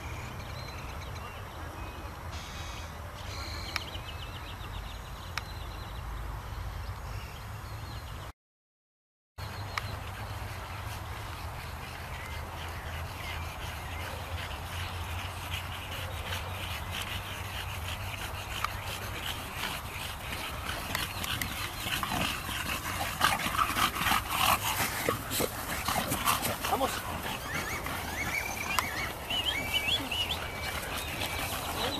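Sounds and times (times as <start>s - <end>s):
dogs panting: 9.4s - 31.9s.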